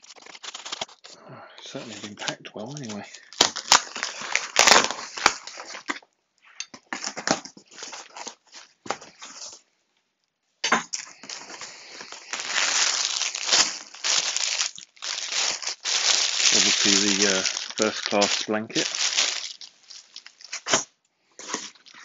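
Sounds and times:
plastic bag crinkling: 0:00.0 - 0:06.1, 0:06.9 - 0:09.6, 0:10.9 - 0:22.0
knife cutting packing tape: 0:20.5 - 0:20.9.

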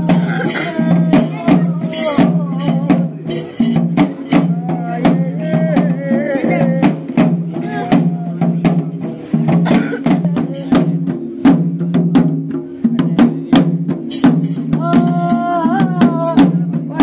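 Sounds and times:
hand-struck drums beating: 0:00.0 - 0:17.0.

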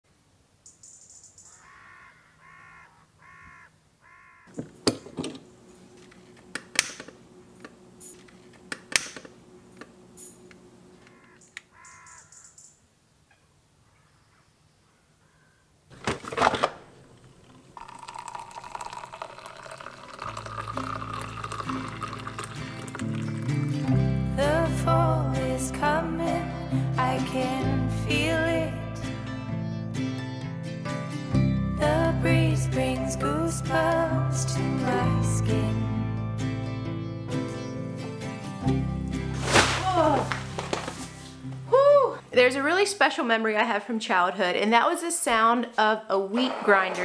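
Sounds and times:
crow cawing: 0:01.5 - 0:04.6, 0:11.0 - 0:12.7, 0:13.8 - 0:15.7
faint running water: 0:17.2 - 0:23.8
music: 0:20.3 - 0:41.7.

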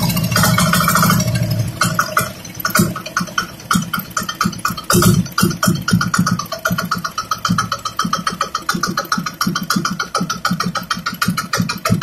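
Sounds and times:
diesel engine knocking: 0:00.0 - 0:12.0.

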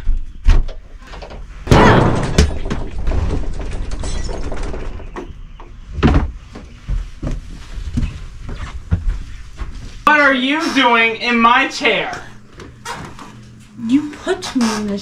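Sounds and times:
footsteps on wooden floor: 0:06.0 - 0:10.0.

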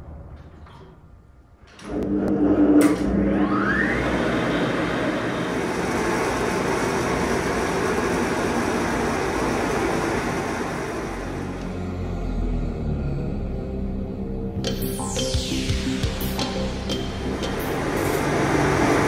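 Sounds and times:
pump motors humming: 0:01.8 - 0:12.1, 0:16.2 - 0:19.0
short rising whine: 0:10.5 - 0:19.0.

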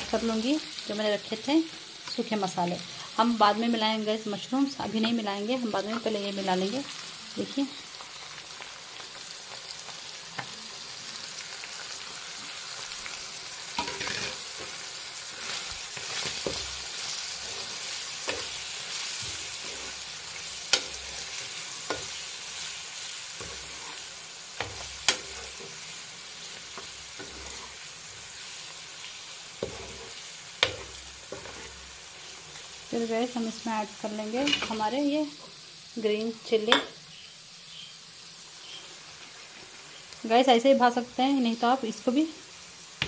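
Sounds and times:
chicken sizzling in oil: 0:00.0 - 0:43.0
spoon scraping frying pan: 0:13.8 - 0:28.5, 0:29.5 - 0:32.8, 0:34.3 - 0:34.9
spoon knocking pan: 0:20.6 - 0:22.3, 0:29.6 - 0:31.8, 0:36.7 - 0:37.0.

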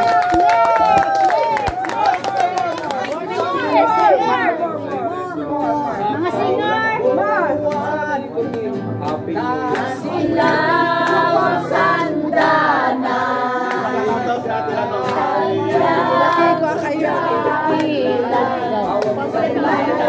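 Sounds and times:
group singing together: 0:07.2 - 0:20.0.

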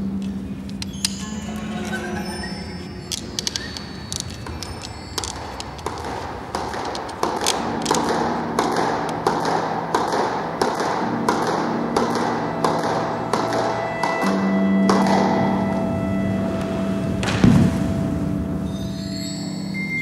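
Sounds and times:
squash ball hits: 0:05.8 - 0:15.3
low steady hum: 0:07.0 - 0:19.3.

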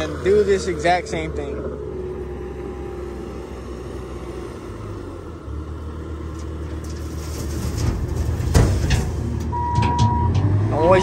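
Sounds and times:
diesel engine under load: 0:00.0 - 0:11.0
soil pouring into trailer: 0:06.6 - 0:09.5.

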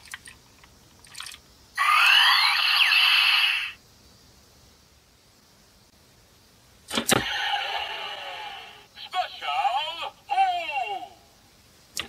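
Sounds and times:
toy gun electronic sound effect: 0:01.8 - 0:03.8.

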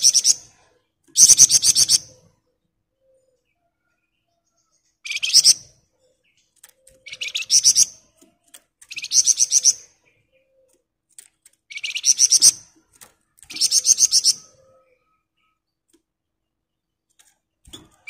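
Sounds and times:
bird chattering trill: 0:07.0 - 0:08.0.

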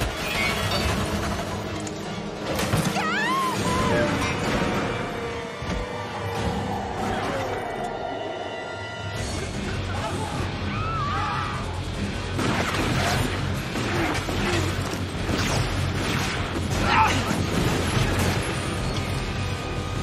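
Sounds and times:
tense music: 0:00.0 - 0:20.0
gunshots: 0:12.2 - 0:18.9.

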